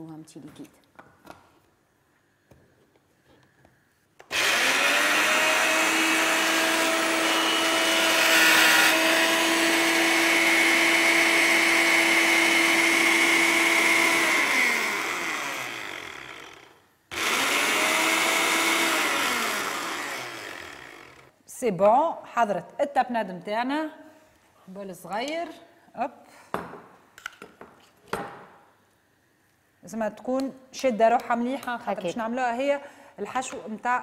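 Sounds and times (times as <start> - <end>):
electric chopper motor whirring: 4.3 - 21.3.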